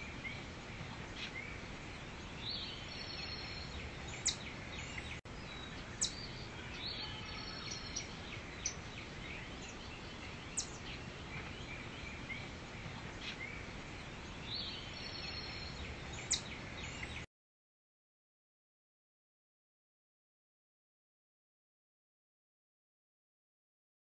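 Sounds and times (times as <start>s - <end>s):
background hiss: 0.0s - 17.3s
birds chirping: 0.0s - 17.3s.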